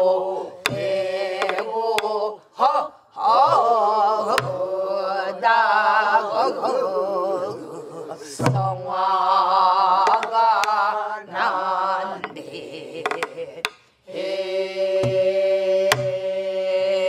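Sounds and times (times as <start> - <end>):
group of voices singing folk song: 0.0 - 17.0
barrel drum struck with stick: 0.6 - 2.1, 15.0 - 15.3, 15.9 - 16.2.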